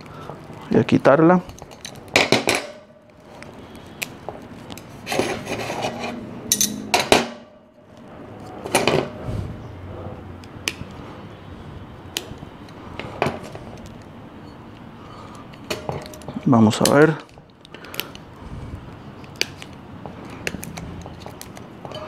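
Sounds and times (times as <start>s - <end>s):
dry root snapping clicks: 10.4s - 11.0s, 16.8s - 18.2s, 19.2s - 21.6s.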